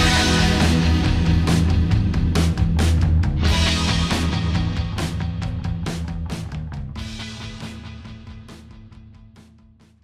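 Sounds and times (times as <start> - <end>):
background music with steady beat: 0.0 - 10.0.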